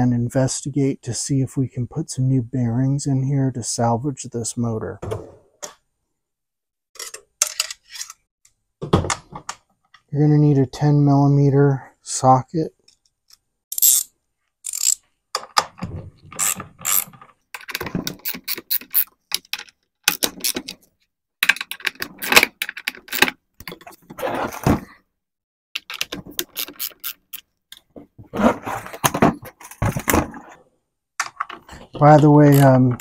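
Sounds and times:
hand ratchet clicking: 14.7 - 15.0.

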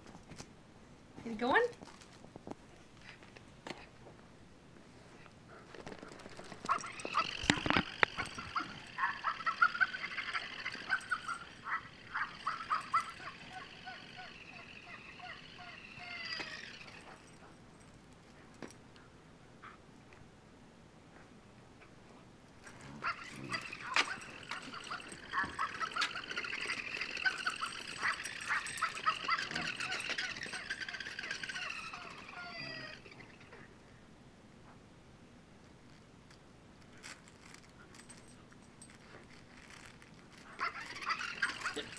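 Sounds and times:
toy motor whine: 6.6 - 17.4, 22.8 - 33.6, 39.6 - 41.9
squeaky chirps: 6.7 - 17.3, 22.8 - 33.7, 40.6 - 41.9.

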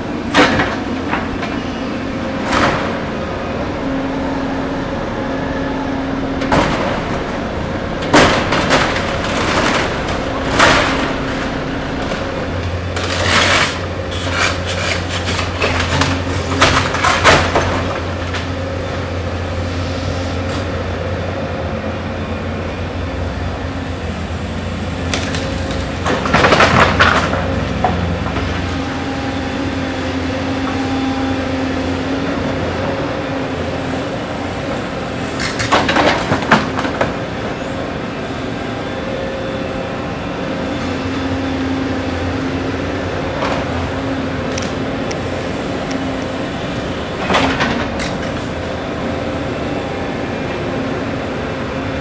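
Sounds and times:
excavator diesel engine running: 0.0 - 52.0
deep engine hum: 0.9 - 14.4.

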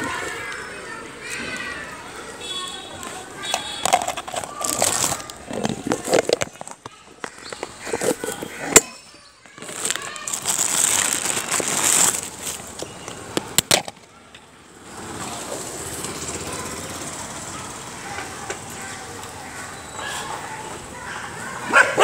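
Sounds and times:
loud handling rustle: 2.5 - 14.1.

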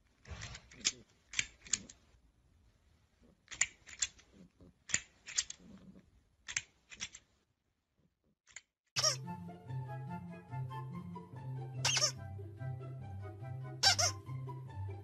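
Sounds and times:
plastic toy jaws clacking: 0.1 - 2.1, 3.4 - 7.4, 8.4 - 8.7
music: 9.0 - 15.0.

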